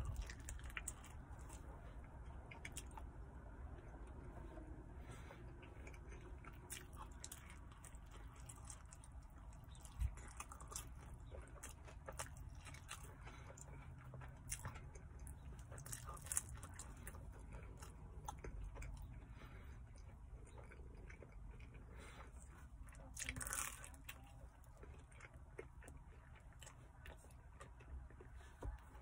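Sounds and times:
person chewing: 0:00.0 - 0:29.0.

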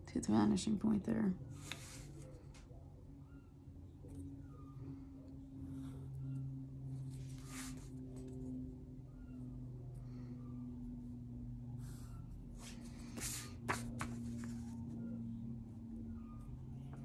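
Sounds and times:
steady low hum: 0:00.0 - 0:17.0
paper rustling: 0:12.6 - 0:14.9.

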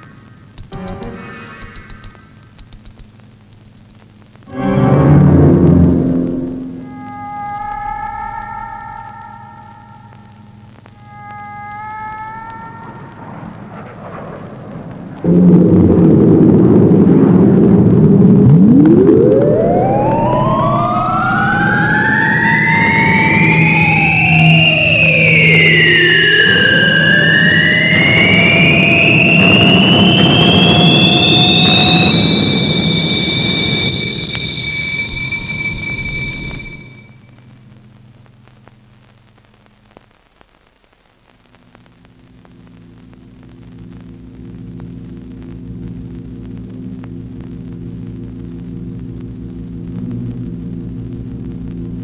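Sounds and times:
low electronic drone: 0:00.0 - 0:38.0, 0:42.5 - 0:52.0
low steady hum: 0:00.0 - 0:52.0
film crackle clicks: 0:00.5 - 0:04.5
siren-like gliding electronic tones: 0:00.6 - 0:04.5, 0:06.8 - 0:11.7, 0:18.4 - 0:37.2.

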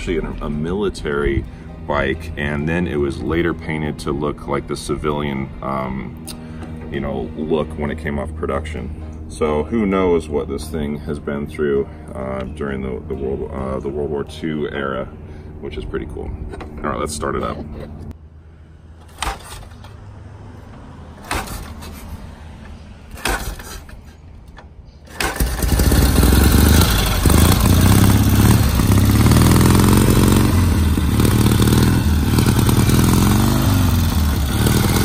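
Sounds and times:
motorcycle engine revving: 0:25.1 - 0:35.0.

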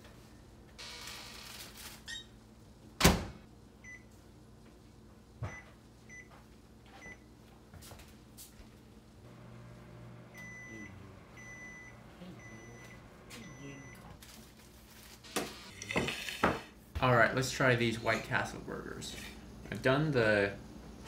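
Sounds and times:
microwave oven humming: 0:09.0 - 0:14.2
long beeps: 0:10.3 - 0:14.0.

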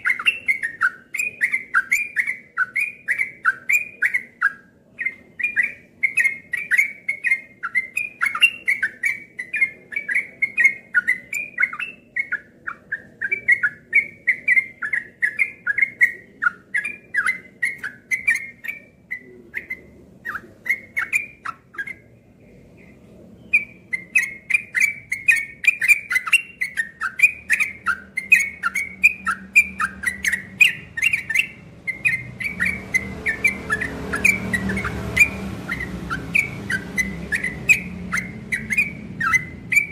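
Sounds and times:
bird chirping song: 0:00.0 - 0:39.9.

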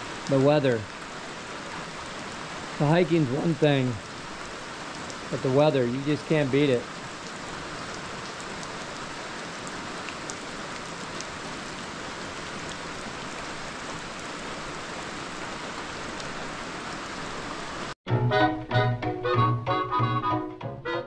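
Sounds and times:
rain falling into puddles: 0:00.0 - 0:18.0.

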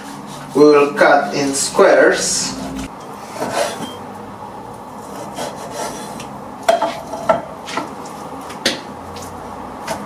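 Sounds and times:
knife scraping and handling: 0:02.5 - 0:04.0.

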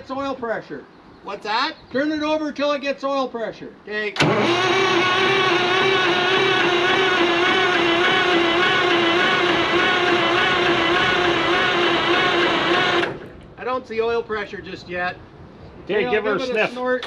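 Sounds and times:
starter motor cranking whine: 0:04.2 - 0:13.4.

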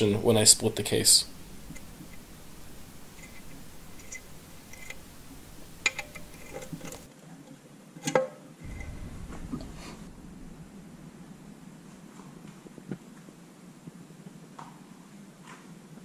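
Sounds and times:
metal tool clicking and tapping: 0:05.8 - 0:07.0.

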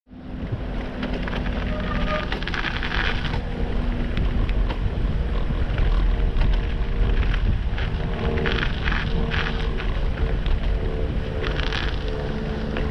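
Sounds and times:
tyre noise on paved path: 0:00.1 - 0:12.9
wind rumbling on microphone: 0:00.1 - 0:12.9
small clicks and rattles: 0:00.7 - 0:12.9.

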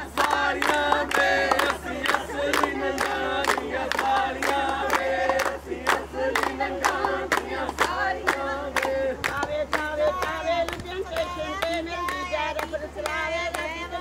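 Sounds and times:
crowd singing or chanting: 0:00.0 - 0:14.0.

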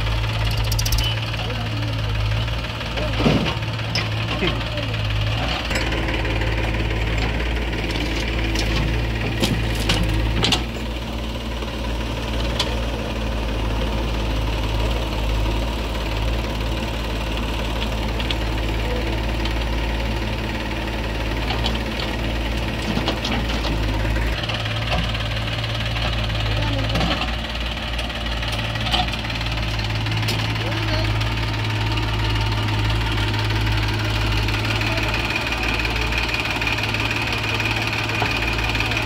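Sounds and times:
diesel engines running: 0:00.0 - 0:39.0
backhoe knocks and clatters: 0:03.0 - 0:04.7, 0:07.1 - 0:10.9, 0:21.3 - 0:30.6.

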